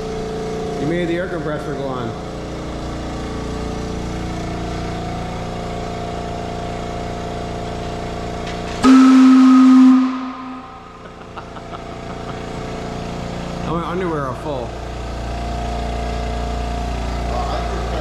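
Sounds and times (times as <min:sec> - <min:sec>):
air compressor humming: 0:00.0 - 0:18.0
loud low factory whistle: 0:08.8 - 0:11.1.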